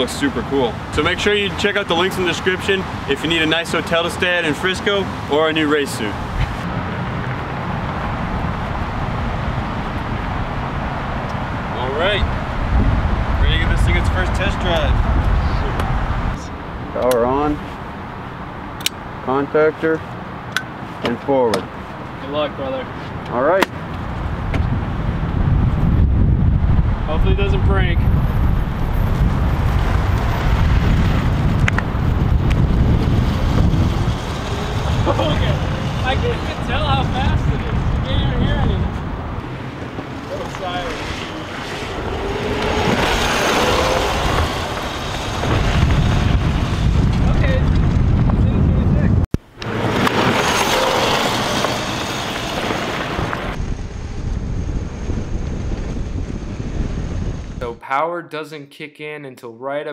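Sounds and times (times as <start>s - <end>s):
wind rumbling on microphone: 6.1s - 19.2s, 23.8s - 57.7s
go-kart tyres hissing: 27.4s - 48.0s, 49.6s - 57.6s.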